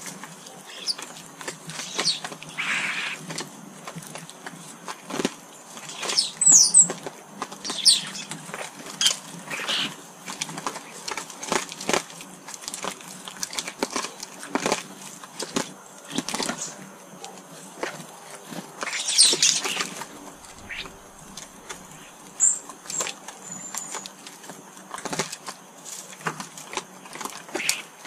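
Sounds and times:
high falling bird calls: 0.6 - 1.1, 1.7 - 3.2, 5.8 - 6.9, 7.6 - 8.4, 9.0 - 10.0, 18.8 - 24.0, 27.5 - 27.9
bird wings flapping: 18.8 - 23.2.

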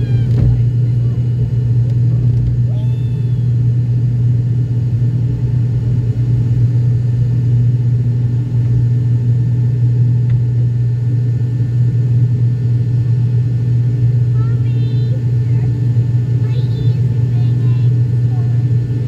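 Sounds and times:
propeller engine drone in cabin: 0.0 - 19.0.

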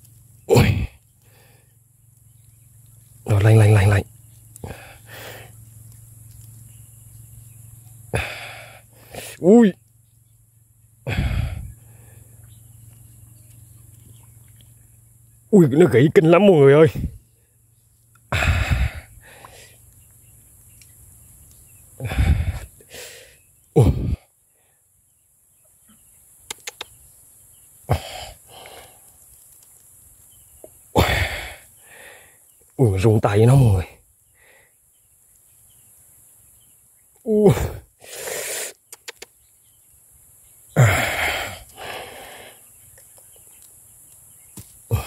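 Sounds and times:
man breathing heavily: 0.8 - 1.8, 4.6 - 5.6, 8.1 - 9.4, 11.0 - 12.4, 18.3 - 19.8, 22.0 - 24.8, 27.9 - 29.1, 31.0 - 32.4, 34.4 - 34.8, 40.8 - 42.7
man grunting with effort: 11.1 - 11.7, 18.3 - 19.1, 22.0 - 22.6, 23.8 - 24.2, 27.9 - 28.3, 31.0 - 31.6, 37.3 - 37.9, 40.8 - 41.6
sharp clicks: 26.4 - 27.0, 38.7 - 39.4.

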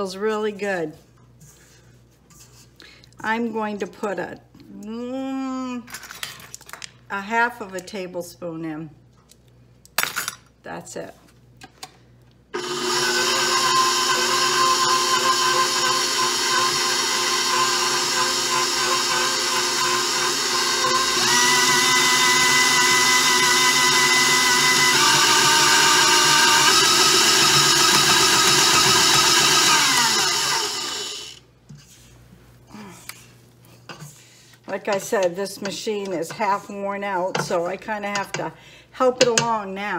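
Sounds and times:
stand mixer motor running: 12.6 - 31.4.

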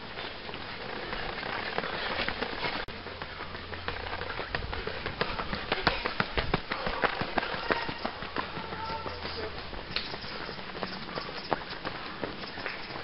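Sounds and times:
running footsteps on wet tarmac: 0.0 - 13.0.

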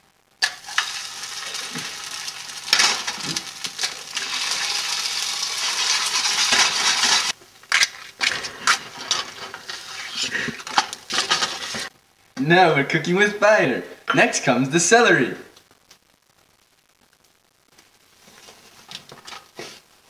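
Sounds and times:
skillet hiss: 0.4 - 7.4, 8.2 - 11.9.

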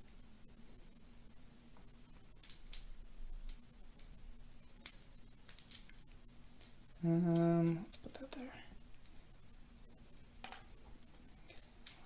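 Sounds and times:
plastic bricks clicking: 2.4 - 3.6, 4.8 - 6.0, 7.3 - 8.1, 11.5 - 12.0.

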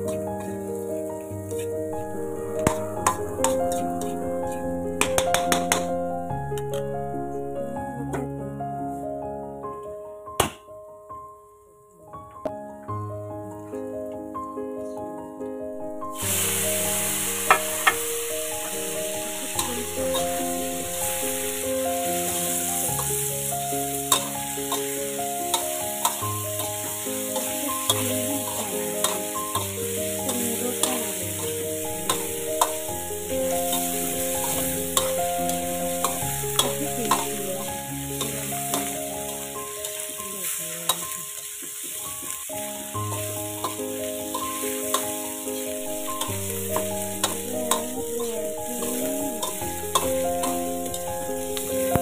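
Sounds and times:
slow background music: 0.0 - 52.0
meatballs sizzling in oil: 16.1 - 52.0.

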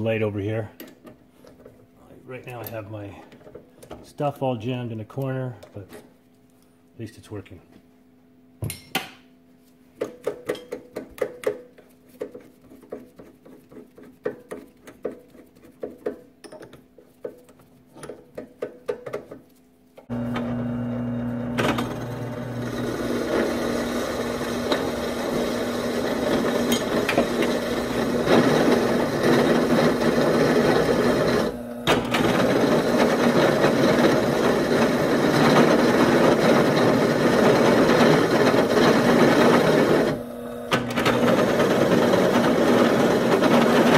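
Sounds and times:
drill press cutting steel: 20.1 - 43.9.

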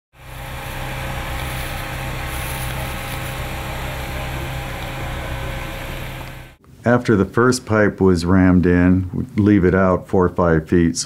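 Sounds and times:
heavy construction machinery running: 0.1 - 6.6.

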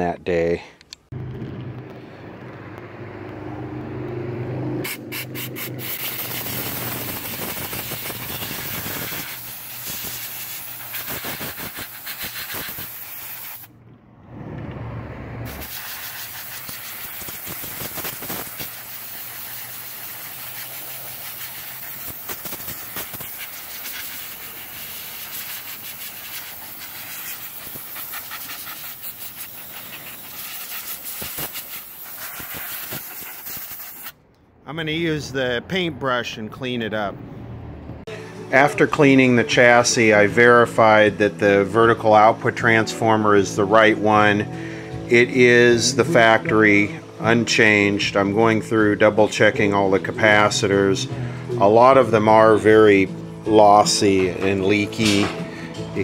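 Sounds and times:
low hum: 1.1 - 5.1
air gun blowing hissing air: 4.8 - 13.7, 15.5 - 34.2.

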